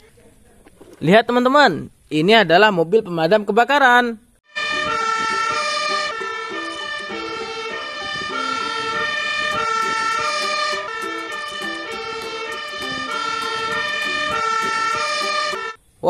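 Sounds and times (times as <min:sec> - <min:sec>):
fire engine siren: 0:04.5 - 0:15.8.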